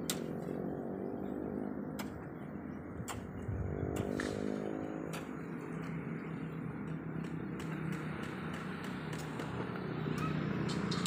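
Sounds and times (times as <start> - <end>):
low motor hum: 0.0 - 7.7.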